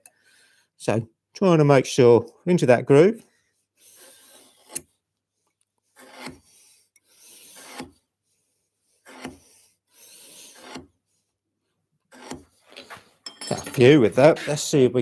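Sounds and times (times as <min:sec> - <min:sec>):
knife scoring wood: 0:03.8 - 0:11.3, 0:12.1 - 0:12.9.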